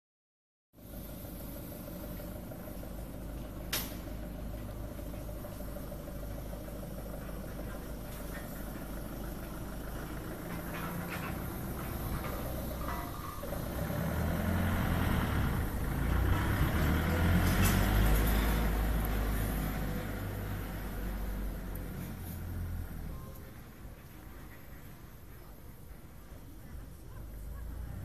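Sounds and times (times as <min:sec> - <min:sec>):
light rattling: 0:03.5 - 0:22.5.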